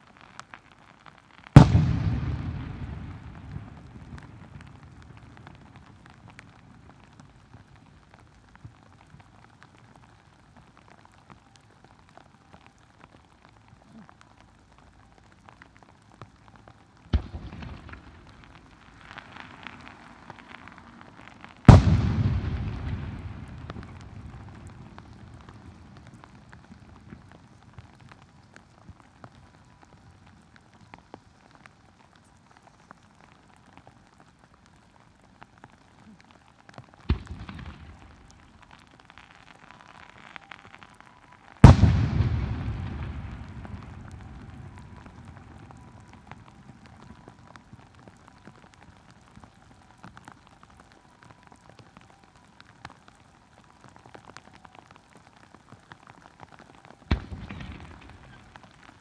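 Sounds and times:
firework crackling: 0.0s - 59.0s
rain pattering: 0.0s - 59.0s
firework booms: 1.6s - 7.2s, 17.1s - 28.1s, 37.0s - 38.5s, 41.6s - 47.9s, 57.1s - 58.9s.

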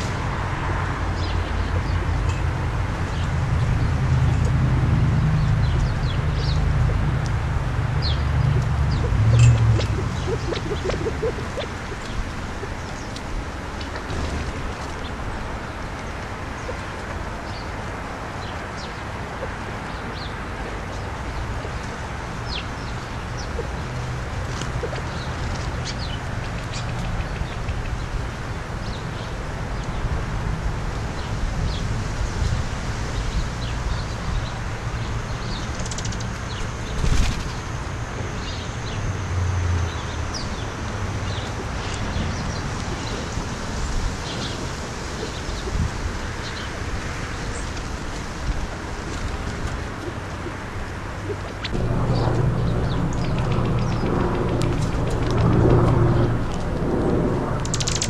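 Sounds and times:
bird wings flapping: 36.9s - 37.6s, 57.6s - 58.0s.

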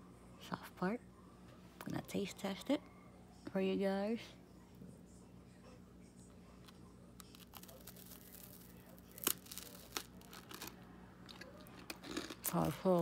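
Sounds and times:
chewing crunchy toast: 6.6s - 13.0s.

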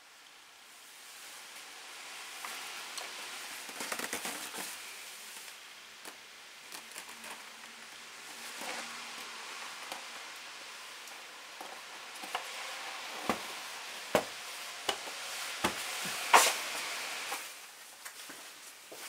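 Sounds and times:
steady hiss: 0.0s - 19.0s
crackly clicks: 5.4s - 7.9s.

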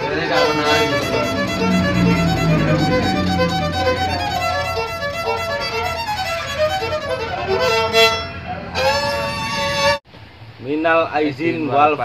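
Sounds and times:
violin melody of short notes: 0.3s - 8.2s.

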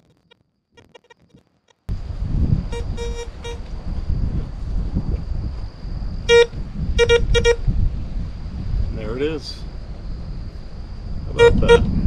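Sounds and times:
low rumble: 1.9s - 12.0s
metal detector beeping: 2.8s - 3.6s, 6.3s - 7.6s.

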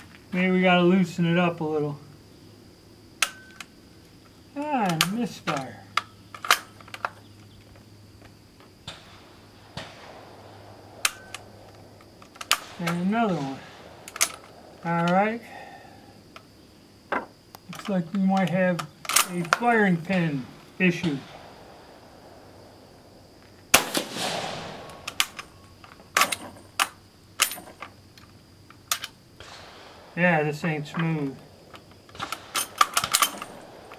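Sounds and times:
rifle bolt metallic clicks: 4.8s - 7.2s, 11.0s - 15.2s, 17.5s - 19.7s, 24.8s - 29.6s, 31.7s - 33.6s
rifle shot with echo: 8.8s - 16.3s, 19.1s - 26.4s, 29.4s - 33.9s.

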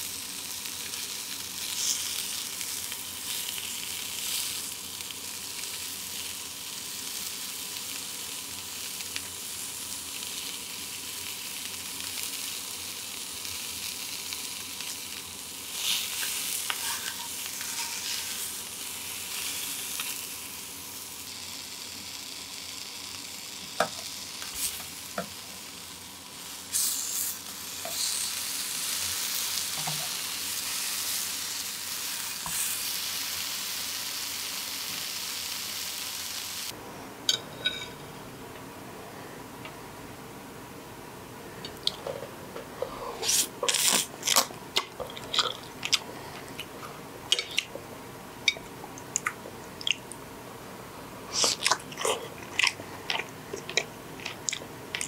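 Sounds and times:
meat sizzling in frying pan: 0.0s - 36.7s.

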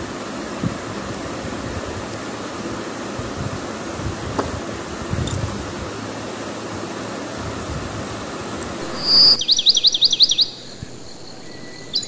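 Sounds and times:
bird chirping: 8.8s - 12.0s.

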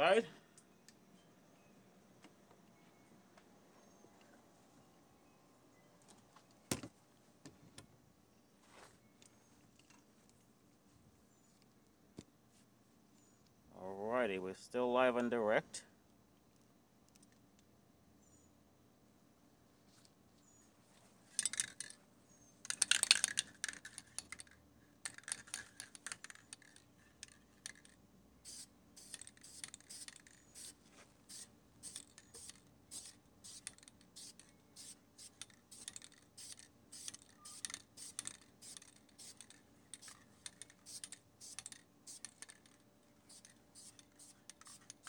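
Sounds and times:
spray paint can hissing: 28.4s - 45.0s.

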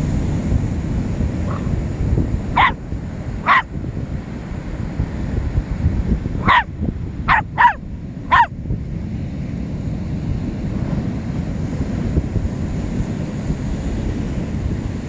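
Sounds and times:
puppy barking: 1.5s - 1.8s, 2.6s - 2.8s, 3.4s - 3.7s, 6.4s - 6.7s, 7.3s - 8.5s.

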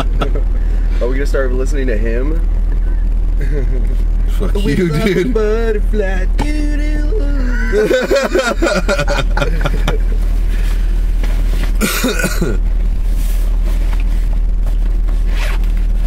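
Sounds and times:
men laughing and talking: 0.0s - 1.2s, 3.4s - 5.6s, 7.4s - 10.3s
car cabin rumble: 0.0s - 16.0s.

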